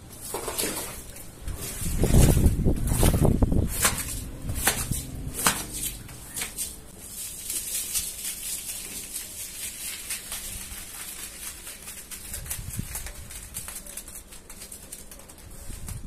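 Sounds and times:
crackly hiss of cleaning powder: 0:05.0 - 0:16.0.

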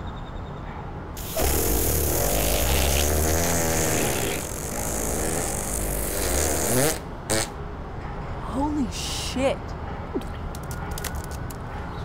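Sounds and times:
fart sound effect: 0:01.2 - 0:07.6.

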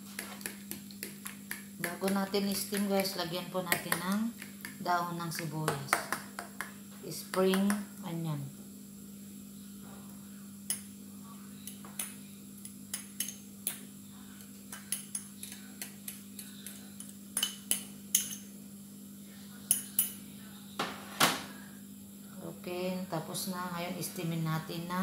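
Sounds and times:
utensil tapping ceramic bowl: 0:00.2 - 0:07.8.

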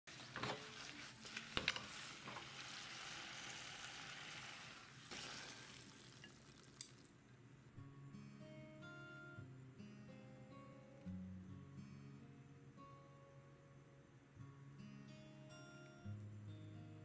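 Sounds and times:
stir-fry sizzling in a pan: 0:00.1 - 0:07.0.

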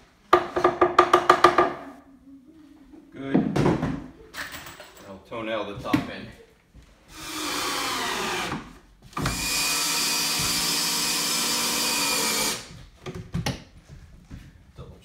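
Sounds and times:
drill driving a screw: 0:07.1 - 0:12.7.

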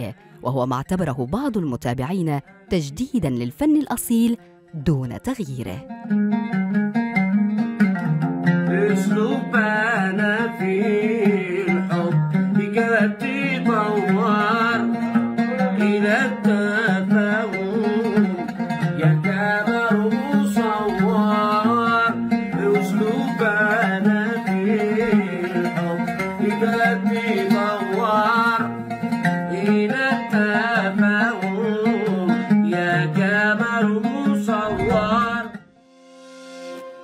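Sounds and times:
plucked string accompaniment: 0:04.1 - 0:37.0
man singing: 0:08.7 - 0:35.6.

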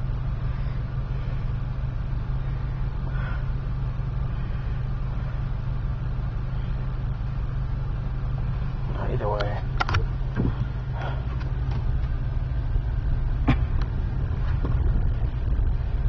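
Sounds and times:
car engine drone: 0:00.0 - 0:16.0.

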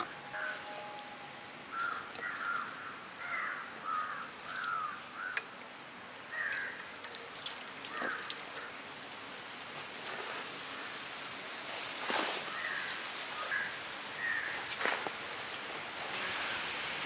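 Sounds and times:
crows cawing: 0:00.0 - 0:05.5, 0:06.3 - 0:06.9, 0:07.8 - 0:08.7, 0:12.5 - 0:14.8.

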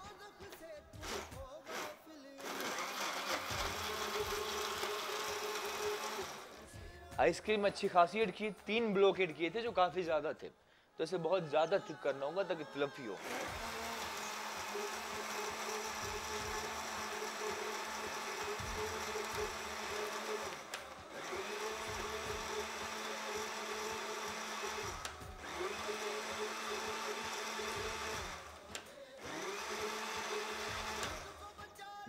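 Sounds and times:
blender running: 0:00.9 - 0:06.8, 0:12.7 - 0:31.6.

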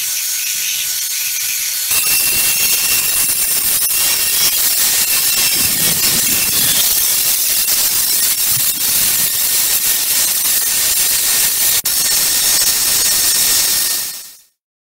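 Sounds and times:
belt sander hissing: 0:00.0 - 0:14.4
motor whine: 0:01.9 - 0:09.3.

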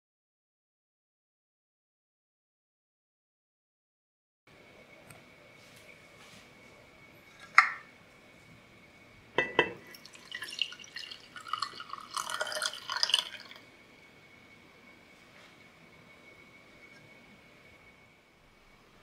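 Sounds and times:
glass carafe clinking: 0:07.4 - 0:07.9, 0:09.4 - 0:13.6
coffee pouring into a mug: 0:09.6 - 0:13.7.

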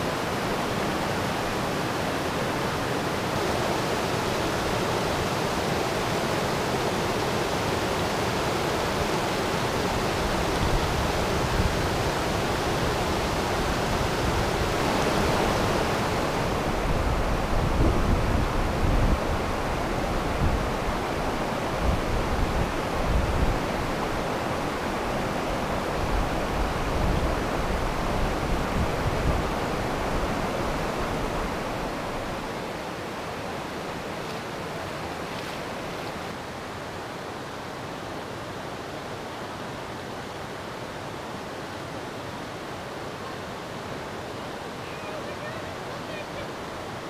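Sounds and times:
creek water over rapids: 0:00.0 - 0:47.0
wind buffeting microphone: 0:09.8 - 0:24.2.

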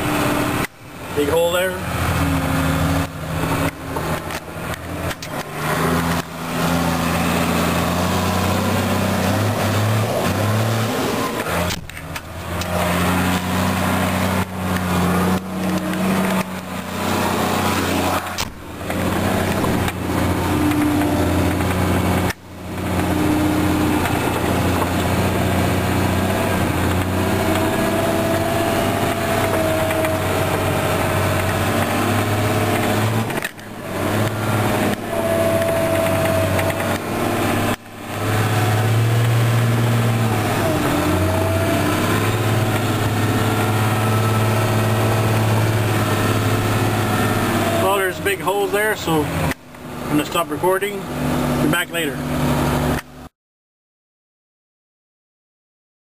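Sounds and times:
engine running inside cab: 0:00.0 - 0:53.3.

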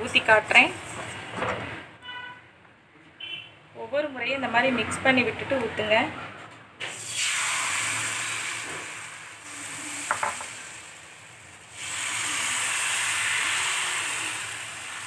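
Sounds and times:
batter sizzling in hot pan: 0:06.9 - 0:15.0.

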